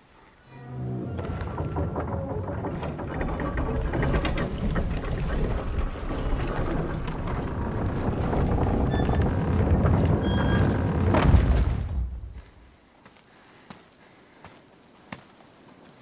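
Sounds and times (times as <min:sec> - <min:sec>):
deep rumble: 0:00.8 - 0:12.7.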